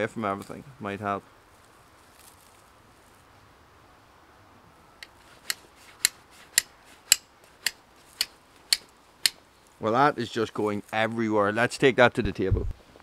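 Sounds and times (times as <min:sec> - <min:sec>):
steel striking flint: 0:05.0 - 0:09.5.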